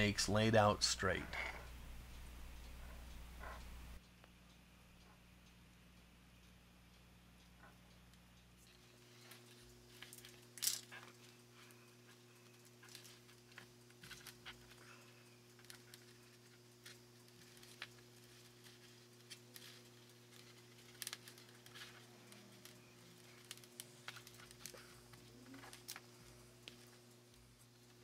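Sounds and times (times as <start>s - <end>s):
steady low hum: 0.0s - 28.0s
small plastic parts clicking: 9.2s - 28.0s.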